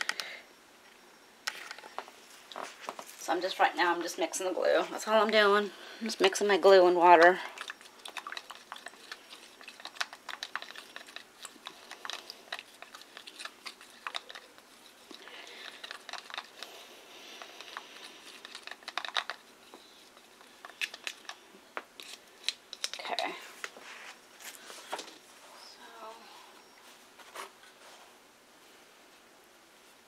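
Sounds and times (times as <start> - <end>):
stir stick scraping plastic tub: 6.1 - 21.4.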